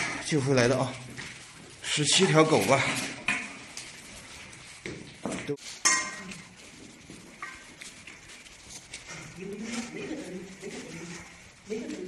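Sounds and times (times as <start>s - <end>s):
metal bowls clinking on tiled floor: 2.0s - 3.9s, 4.9s - 7.9s.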